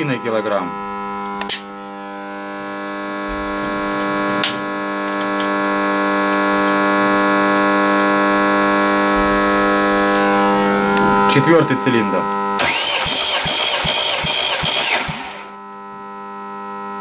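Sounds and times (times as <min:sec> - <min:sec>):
electrical mains hum: 0:00.0 - 0:12.7.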